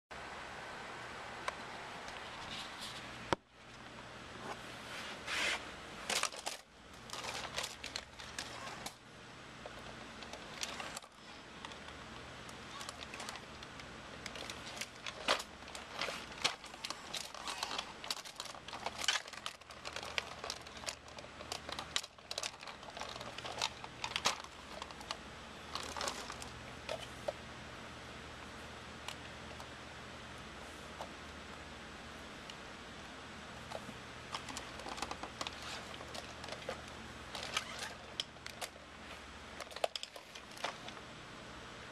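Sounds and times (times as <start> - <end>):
faint low hum: 0.1 - 41.9
toy robot motors and gears clicking: 6.0 - 9.0, 9.6 - 27.1, 33.7 - 38.8, 39.5 - 41.0.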